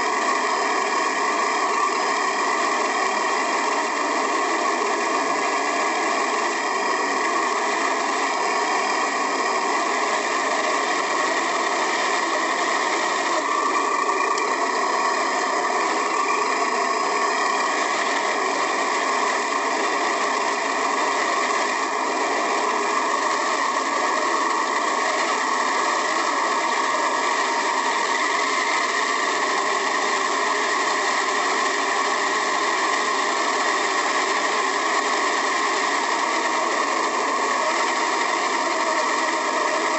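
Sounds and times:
toy car motor whirring: 0:00.0 - 0:39.9.

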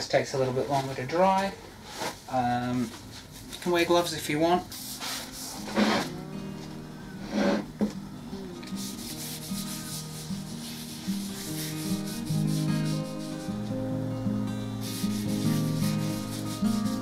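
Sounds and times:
soft background music: 0:04.5 - 0:17.0
cloth rubbing wood: 0:04.7 - 0:13.6, 0:14.8 - 0:17.0.

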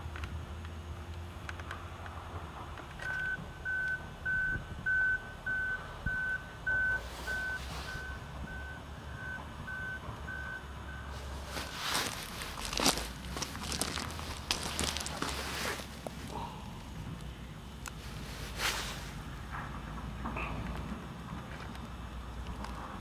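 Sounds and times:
vehicle backup alarm beeping: 0:03.0 - 0:11.9
crunching and crackling: 0:11.1 - 0:23.0.

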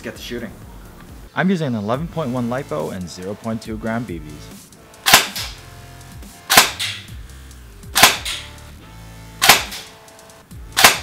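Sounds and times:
airsoft gun shots: 0:05.0 - 0:05.6, 0:06.5 - 0:07.1, 0:07.9 - 0:08.5, 0:09.4 - 0:10.0, 0:10.7 - 0:11.0.

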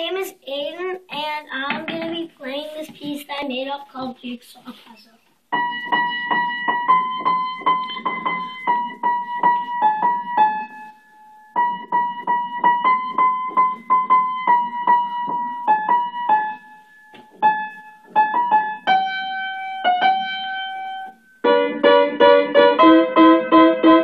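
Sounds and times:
upright piano playing: 0:05.5 - 0:24.0.

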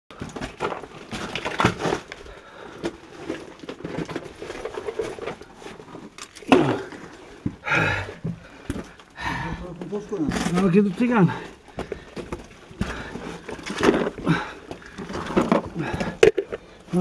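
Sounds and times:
people moving on rock: 0:00.1 - 0:17.0.

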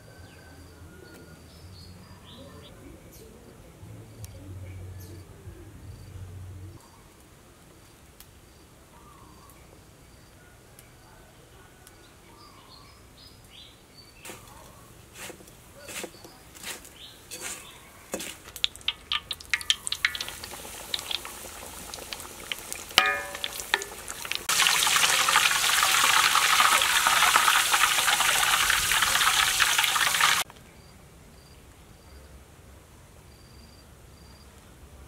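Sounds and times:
light crackles: 0:15.1 - 0:30.7
food sizzling in hot oil: 0:15.2 - 0:30.4
sharp ringing clink: 0:23.0 - 0:24.0
faint insect chirping: 0:30.8 - 0:32.3, 0:33.2 - 0:34.6.

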